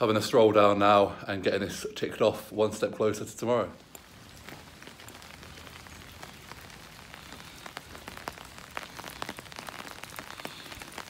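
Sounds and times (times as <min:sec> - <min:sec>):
rain falling on pavement: 0:00.0 - 0:11.0
sharp raindrop ticks: 0:03.8 - 0:11.0.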